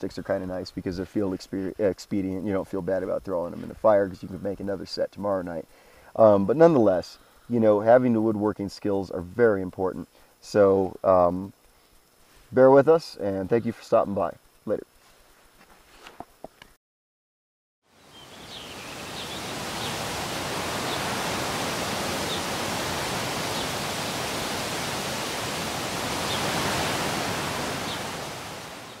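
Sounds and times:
steady rushing noise: 0:18.4 - 0:29.0.

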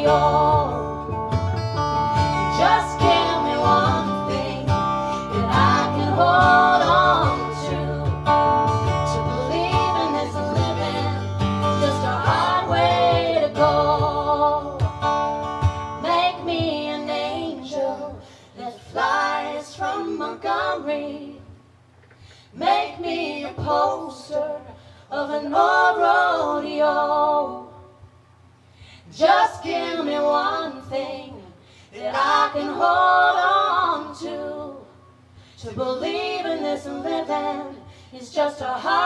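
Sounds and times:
a cappella vocal harmony: 0:00.0 - 0:01.2, 0:02.1 - 0:15.2, 0:15.9 - 0:39.0.

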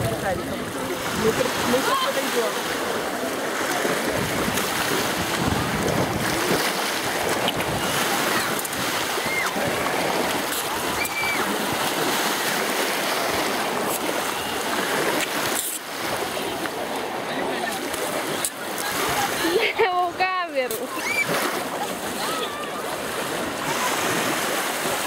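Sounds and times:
people splashing while wading: 0:00.0 - 0:25.0
small waves washing: 0:00.0 - 0:25.0
wind on microphone: 0:03.0 - 0:16.9.

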